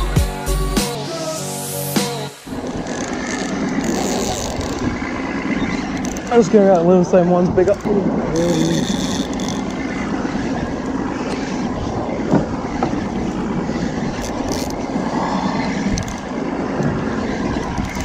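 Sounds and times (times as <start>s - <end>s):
wind: 0.0s - 18.0s
water on choppy sea: 2.5s - 18.0s.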